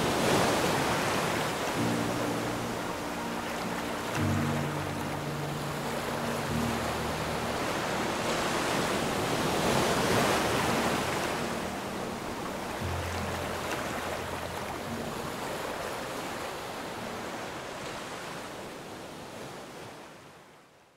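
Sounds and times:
waves breaking: 0.0s - 20.3s.

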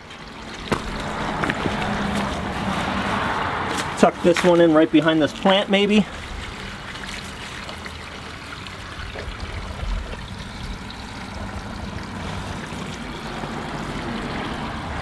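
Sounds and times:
water trickling and splashing: 0.0s - 15.0s.

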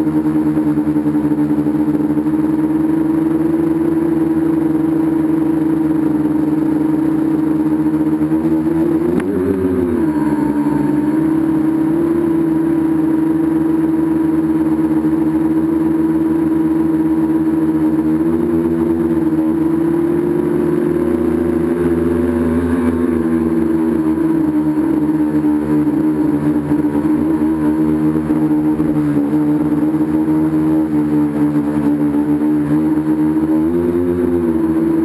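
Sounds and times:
drone motors and propellers whine: 0.0s - 35.0s.

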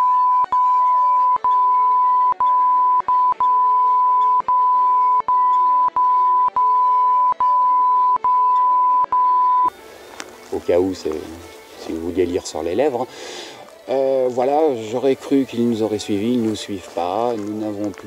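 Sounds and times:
censor bleep tone: 0.0s - 9.7s.

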